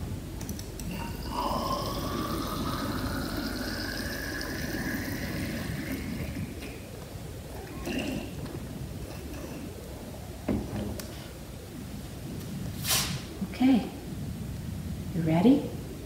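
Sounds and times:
water pouring into cylinder: 0:00.9 - 0:06.8.

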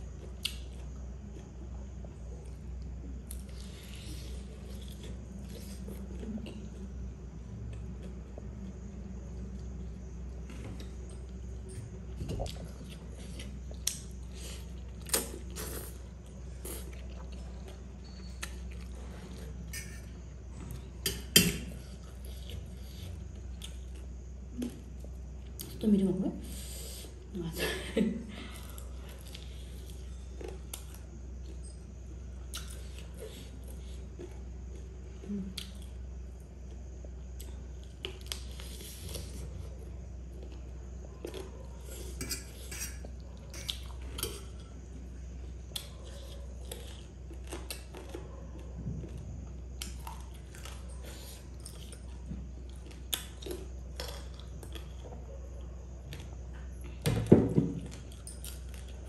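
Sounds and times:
eating and chewing: 0:00.0 - 0:27.5, 0:28.3 - 0:59.0
metal spoon scraping steel plate: 0:19.7 - 0:20.1.

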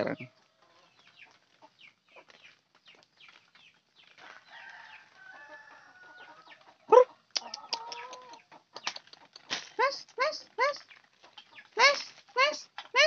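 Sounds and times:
chickens clucking: 0:00.0 - 0:13.0
chicken squawk: 0:04.7 - 0:08.5.

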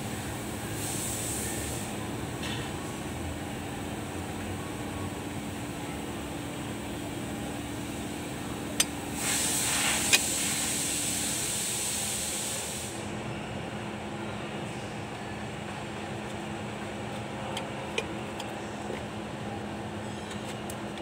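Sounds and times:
steady background hum: 0:00.0 - 0:21.0
rushing hiss: 0:09.2 - 0:13.0.

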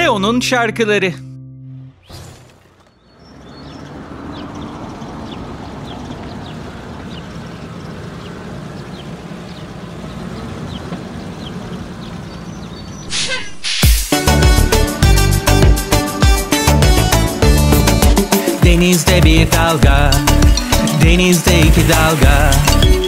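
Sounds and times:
high bird chirps: 0:02.0 - 0:14.0.

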